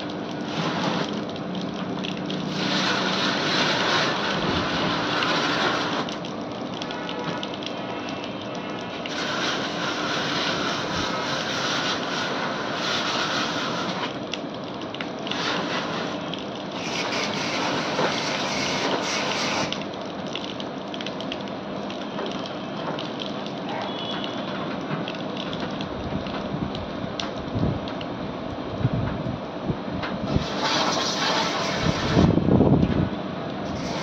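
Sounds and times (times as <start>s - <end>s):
water jet hissing on metal: 0.4s - 1.3s, 2.4s - 6.2s, 6.9s - 14.2s, 15.3s - 19.8s, 30.3s - 32.4s, 33.6s - 34.0s.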